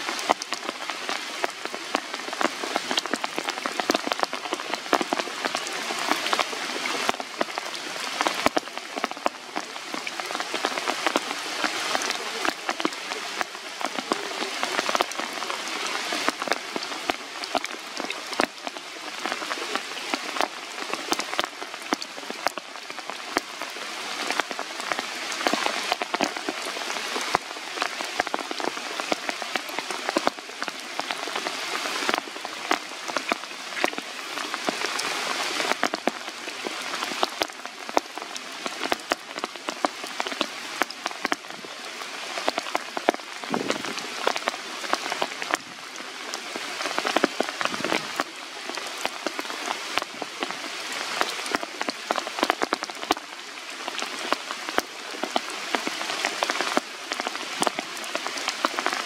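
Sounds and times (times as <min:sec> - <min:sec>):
rain falling on leaves: 0:00.0 - 0:59.0
raindrops ticking: 0:00.0 - 0:59.0.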